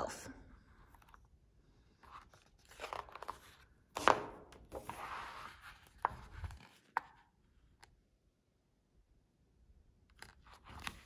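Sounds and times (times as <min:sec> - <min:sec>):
paper pages rustling: 0:01.9 - 0:07.3, 0:10.1 - 0:11.0.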